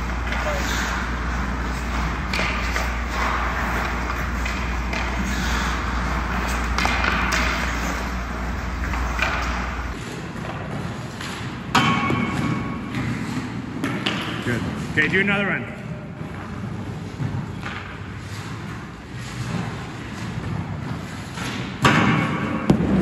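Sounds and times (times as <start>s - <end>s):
ice skates scraping ice: 0.0s - 11.2s, 16.2s - 21.8s
steady low hum: 0.0s - 23.0s.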